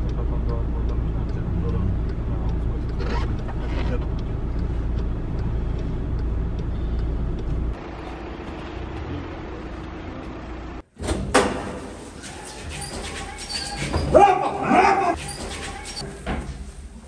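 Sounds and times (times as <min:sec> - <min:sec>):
car cabin rumble: 0:00.0 - 0:07.9.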